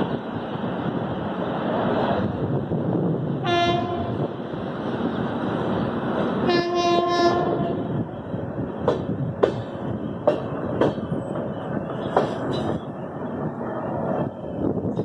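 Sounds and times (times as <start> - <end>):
train running rumble: 0.0 - 15.0
train horn: 3.4 - 4.2, 6.4 - 7.9
wheels clacking over rail joints: 8.7 - 13.9.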